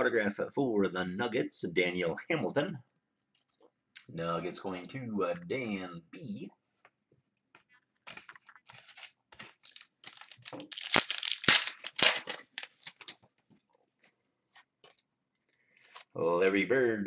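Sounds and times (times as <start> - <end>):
wrapper crinkling and tearing: 8.0 - 13.2.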